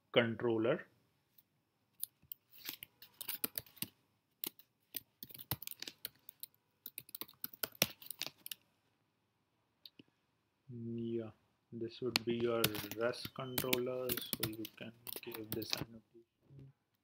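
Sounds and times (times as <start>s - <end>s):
keyboard typing: 2.0s - 8.6s, 12.2s - 15.8s.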